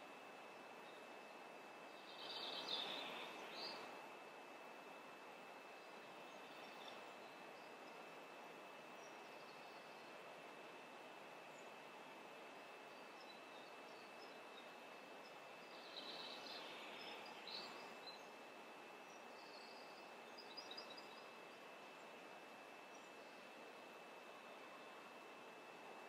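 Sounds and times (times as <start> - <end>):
faint high hum: 0.0 - 26.0
steady hiss: 0.0 - 26.0
faint bird chirps: 0.6 - 4.0, 12.9 - 18.4, 19.0 - 22.2.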